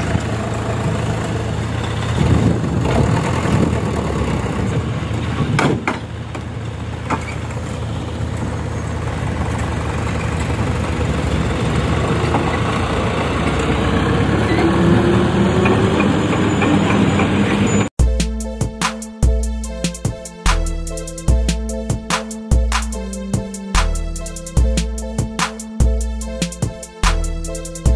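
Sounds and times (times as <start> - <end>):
diesel truck engine running: 0.0 - 27.9
music with a beat: 18.0 - 27.9.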